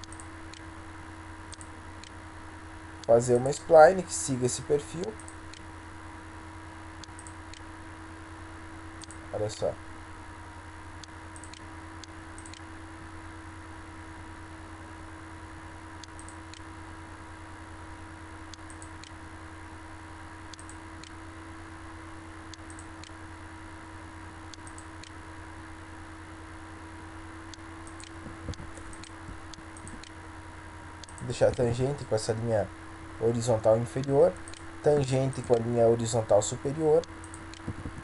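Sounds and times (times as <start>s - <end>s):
computer mouse clicking: 0.0s - 0.7s, 1.5s - 2.2s, 7.0s - 7.6s, 9.0s - 9.2s, 11.0s - 12.7s, 16.0s - 16.7s, 18.5s - 19.2s, 20.5s - 21.2s, 22.5s - 23.2s, 24.5s - 25.2s, 27.5s - 30.2s, 31.0s - 31.6s, 37.0s - 38.0s
electrical hum and hiss: 0.0s - 38.0s.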